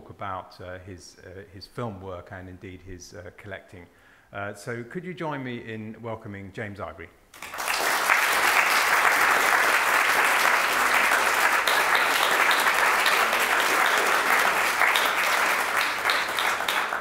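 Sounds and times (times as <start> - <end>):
audience applause: 7.4 - 17.0.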